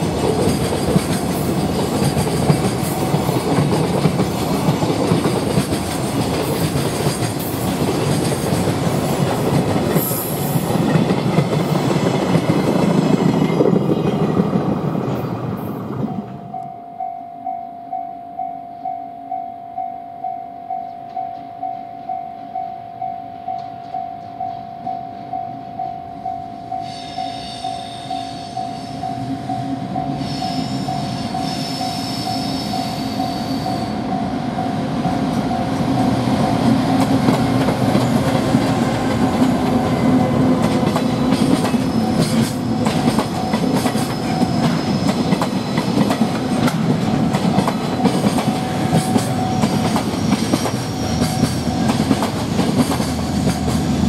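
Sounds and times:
train wagons rumbling: 0.0s - 16.6s, 27.2s - 54.0s
wheels clicking over rail joints: 36.6s - 54.0s.

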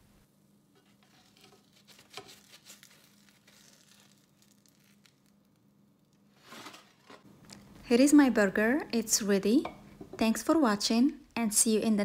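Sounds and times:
faint crackling of frying: 0.6s - 7.9s.

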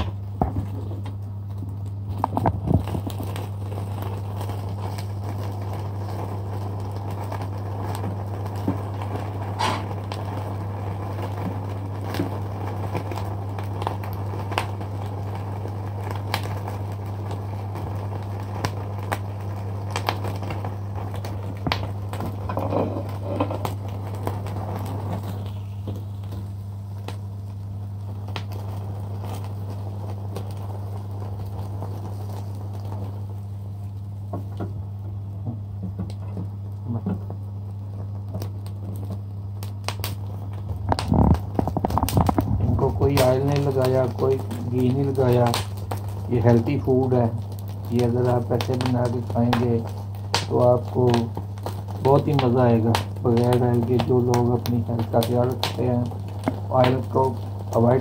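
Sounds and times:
chicken wings crackling and popping: 0.0s - 58.0s
steady low hum: 0.0s - 58.0s.

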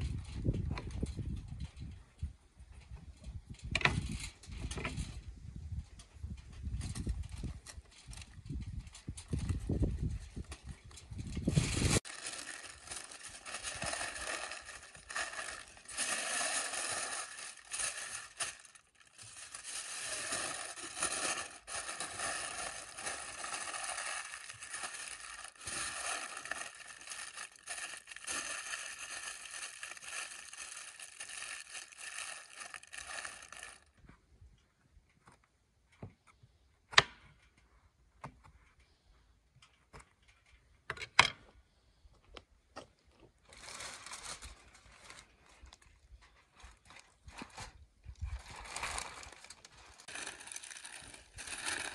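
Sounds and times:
aluminium foil crinkling: 6.8s - 34.0s, 43.5s - 51.9s.

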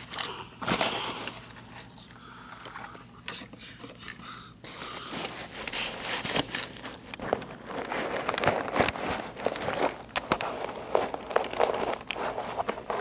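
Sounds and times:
cardboard box rustling and scraping: 5.1s - 13.0s.

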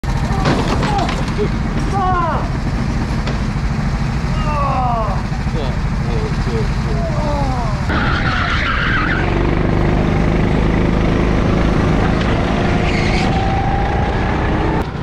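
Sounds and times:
go-kart engine running: 0.0s - 15.0s
high squeal: 7.9s - 9.4s, 12.6s - 14.4s.

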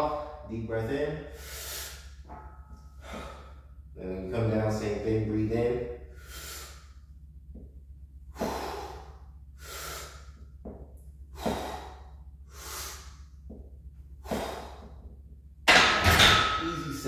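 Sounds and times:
steady low hum: 0.0s - 17.0s
man breathing deeply: 1.3s - 3.9s, 6.0s - 7.1s, 8.2s - 10.6s, 11.2s - 13.5s, 14.1s - 15.2s.

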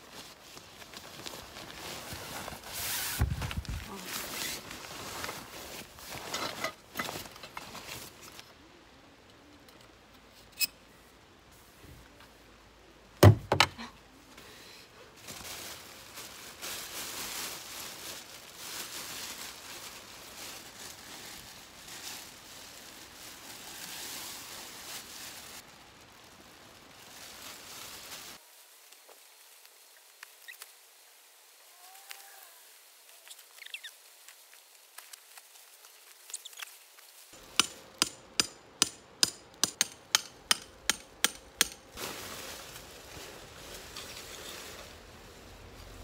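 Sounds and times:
plastic raincoat crinkling: 0.0s - 8.5s, 15.2s - 30.8s, 33.1s - 37.5s, 42.0s - 46.0s.

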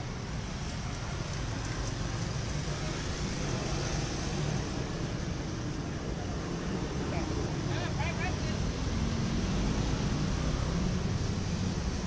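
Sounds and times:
cars and motorcycles passing: 0.0s - 12.0s.

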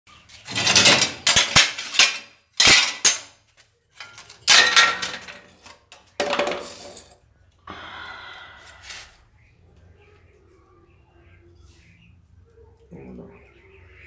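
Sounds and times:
scrap metal clanking and scraping: 0.1s - 3.3s, 3.9s - 7.2s.

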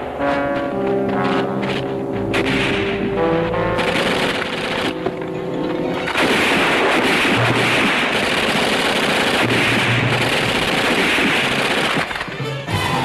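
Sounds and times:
automatic gunfire: 3.8s - 5.1s, 6.1s - 12.4s.

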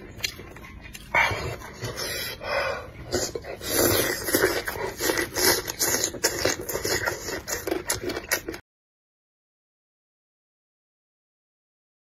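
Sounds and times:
slurping and chewing: 0.0s - 8.6s.

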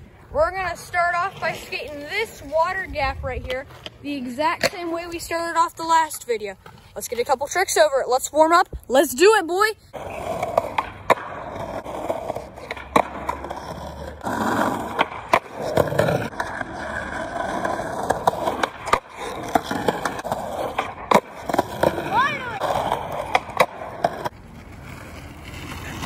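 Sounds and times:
skateboards rolling on asphalt: 0.0s - 26.0s
skateboard tails popping and landing: 3.4s - 6.7s, 10.0s - 26.0s.

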